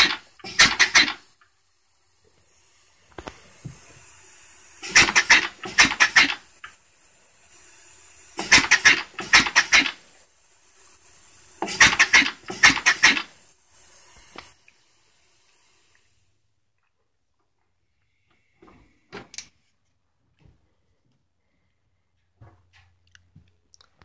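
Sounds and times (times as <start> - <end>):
faint air hiss: 0.0 - 16.8, 17.7 - 22.4
engine exhaust puffs: 2.4 - 10.1, 11.6 - 14.6.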